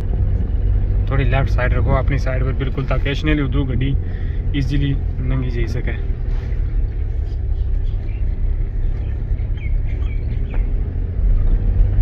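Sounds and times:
car engine and road rumble: 0:00.0 - 0:12.0
faint bird chirps: 0:07.3 - 0:10.8.

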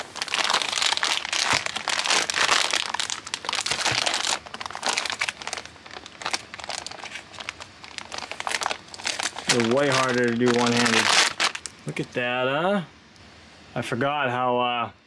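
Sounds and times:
plastic bag crinkling: 0:00.0 - 0:11.8.

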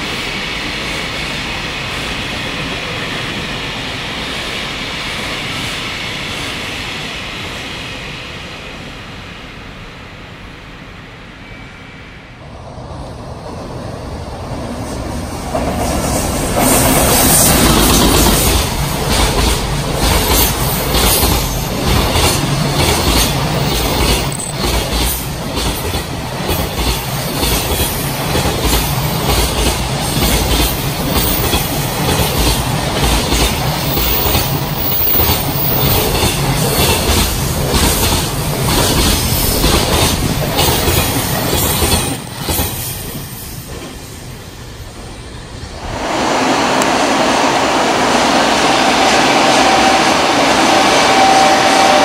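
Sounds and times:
freight train wheels clattering: 0:14.7 - 0:45.2.

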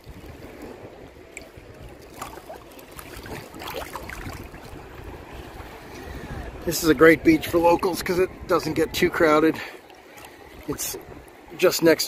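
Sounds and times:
water sloshing and lapping: 0:00.0 - 0:12.0
wind rumbling on microphone: 0:00.0 - 0:12.0
small splashes: 0:01.3 - 0:04.8.

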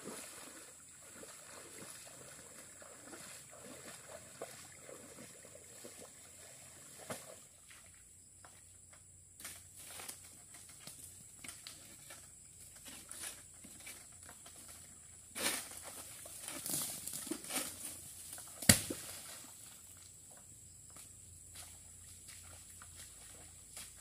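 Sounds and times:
rustling and scraping of palm fronds: 0:09.6 - 0:19.8
sharp thud: 0:18.6 - 0:19.0.

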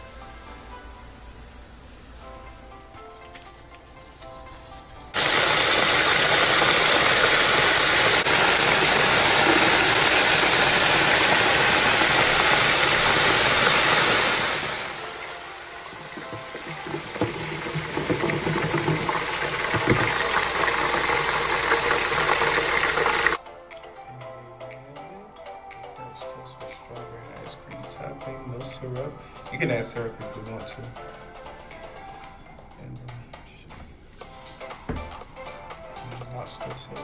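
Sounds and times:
deep-frying oil sizzling: 0:05.2 - 0:23.4
oil popping: 0:05.2 - 0:23.4.

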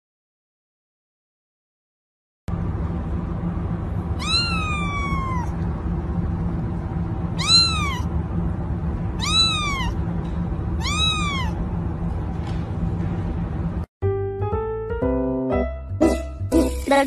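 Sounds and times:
steady low hum: 0:02.5 - 0:13.9
cat meowing: 0:04.2 - 0:05.6, 0:07.4 - 0:08.1, 0:09.2 - 0:10.0, 0:10.8 - 0:11.6.

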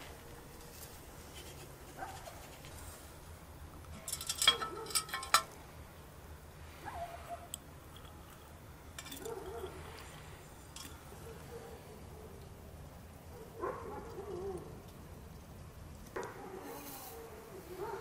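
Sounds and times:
metal kettle clanking and rattling: 0:03.9 - 0:05.6.

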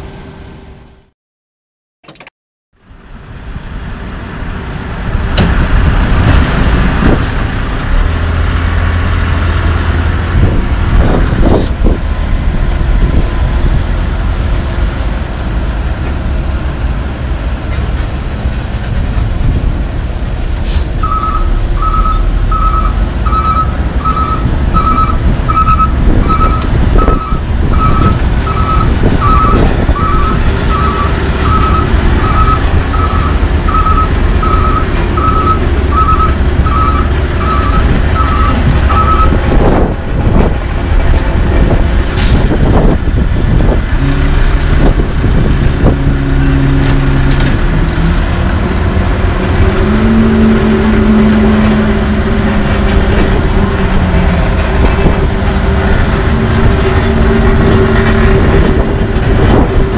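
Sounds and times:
diesel engines rumbling: 0:00.0 - 0:01.1, 0:02.8 - 0:59.9
reversing alarm beeping: 0:21.0 - 0:39.4.

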